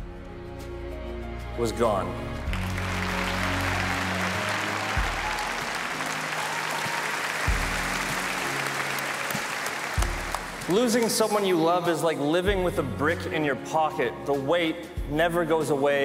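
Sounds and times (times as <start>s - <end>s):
soft background music: 0.0s - 16.0s
audience applauding: 2.5s - 11.4s.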